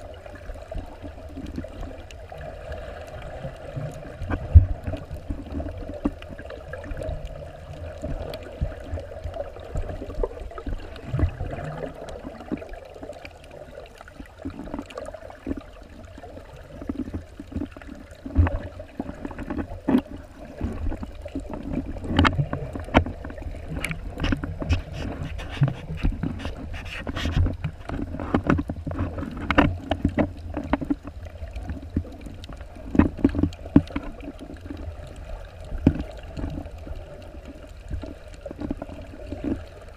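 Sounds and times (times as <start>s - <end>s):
muffled underwater rumble: 0.0s - 39.9s.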